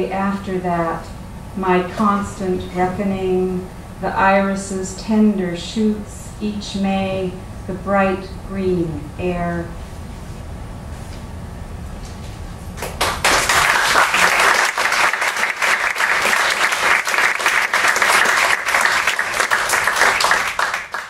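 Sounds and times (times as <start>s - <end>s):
audience applauding: 12.8s - 21.0s.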